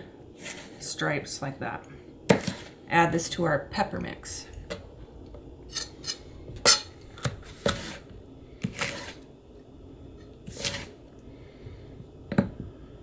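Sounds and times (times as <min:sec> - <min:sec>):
knife scraping through: 0:00.4 - 0:00.8, 0:07.4 - 0:09.2, 0:10.4 - 0:11.0.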